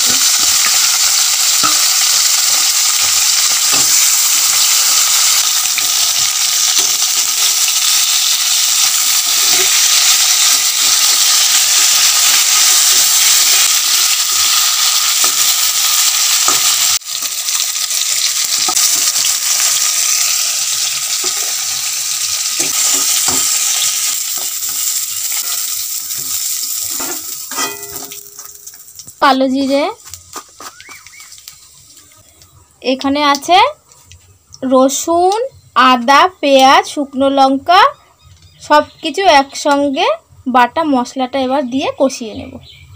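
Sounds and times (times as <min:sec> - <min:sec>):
fish sizzling in hot oil: 0:00.0 - 0:32.3
metal spatula knocking and scraping: 0:22.6 - 0:28.8.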